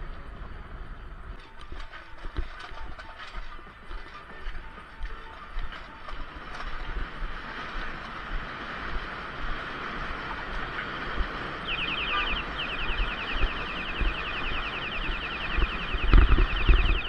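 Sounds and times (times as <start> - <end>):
kick scooter rolling rumble: 0.0 - 11.6
wind on microphone: 0.0 - 17.0
rapid high chirping: 11.6 - 17.0.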